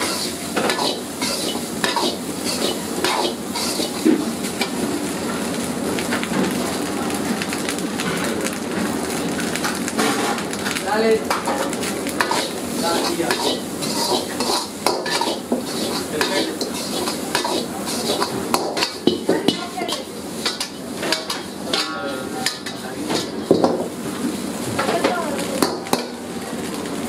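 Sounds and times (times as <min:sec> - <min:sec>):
metal ladle scraping a wok: 0:00.0 - 0:04.8, 0:12.2 - 0:23.5
rice sizzling: 0:00.0 - 0:27.0.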